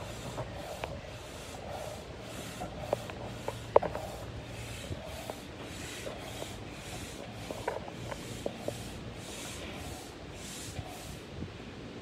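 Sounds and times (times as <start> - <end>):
air pump hissing: 0.0 - 11.5
pump clicks: 2.3 - 4.3.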